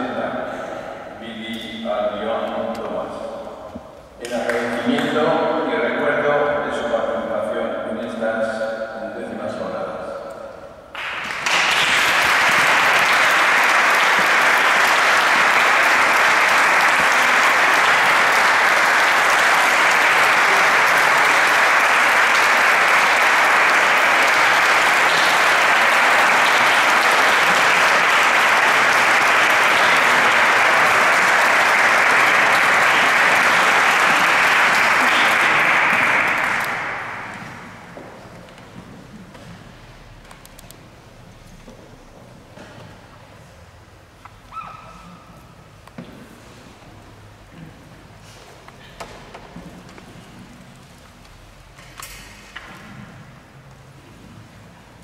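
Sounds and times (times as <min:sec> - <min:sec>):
crowd applauding: 0:10.9 - 0:38.0.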